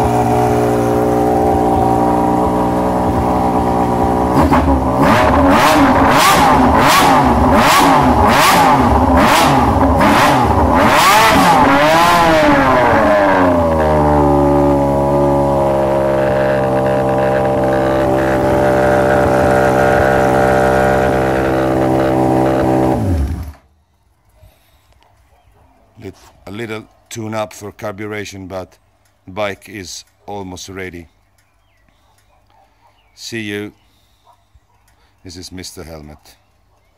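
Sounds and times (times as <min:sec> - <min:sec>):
motorcycle engine revving and idling: 0:00.0 - 0:23.7.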